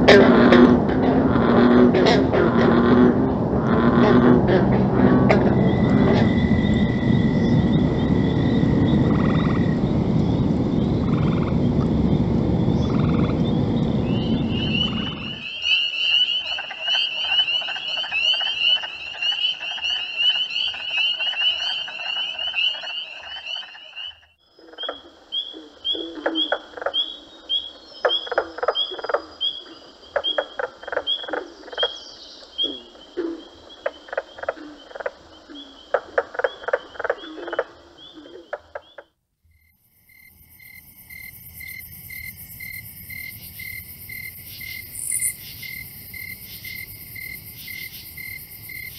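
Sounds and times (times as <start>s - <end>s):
loud low noise: 0.0s - 15.7s
frogs croaking: 0.0s - 48.9s.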